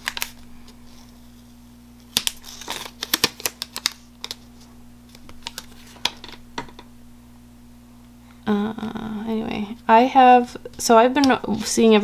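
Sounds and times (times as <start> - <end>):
paper sticker crackling: 0.0 - 1.2, 2.1 - 6.0.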